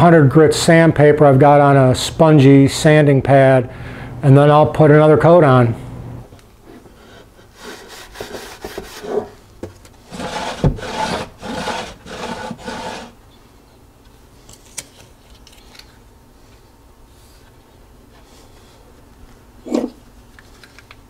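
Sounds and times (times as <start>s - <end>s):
rag rubbing on wood: 7.0s - 9.4s, 10.1s - 13.2s
wooden drawer sliding: 10.1s - 13.2s.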